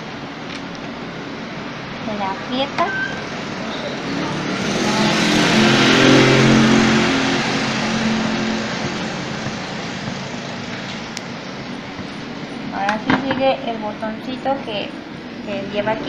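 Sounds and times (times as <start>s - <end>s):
vehicle driving past: 3.1s - 12.7s.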